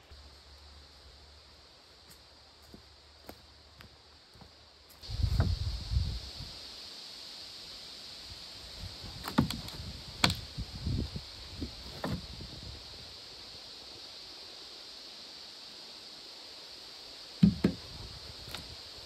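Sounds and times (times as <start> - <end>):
steady high hiss: 0.0 - 19.0
sharp knocks and clunks: 9.2 - 10.4, 11.9 - 12.3, 17.4 - 17.9.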